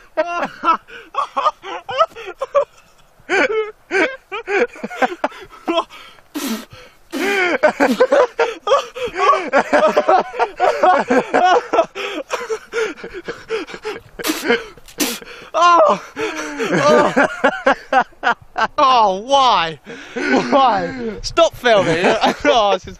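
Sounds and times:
men laughing hard: 0:00.0 - 0:19.1, 0:19.8 - 0:22.8
short hissing bursts: 0:06.0 - 0:08.1, 0:14.2 - 0:15.4.

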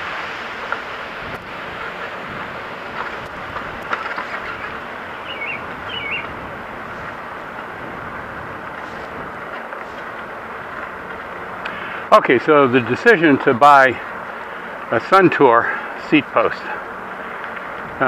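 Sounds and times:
bicycle rolling on pavement: 0:00.0 - 0:18.0
bird chirps: 0:04.3 - 0:06.3.

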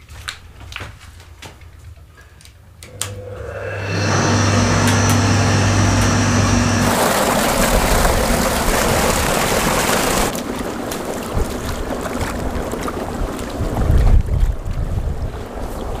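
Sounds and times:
pump motor humming: 0:02.9 - 0:13.9
water gushing from pipe: 0:05.6 - 0:15.6.

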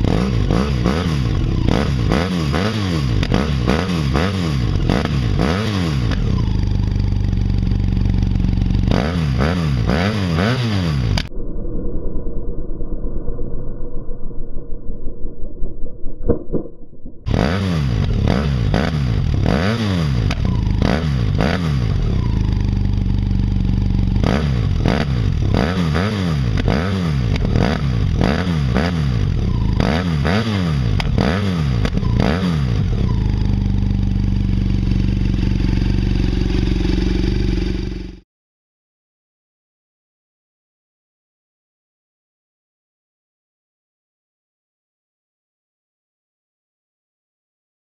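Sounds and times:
motorcycle engine revving: 0:00.0 - 0:11.3, 0:17.3 - 0:38.2.

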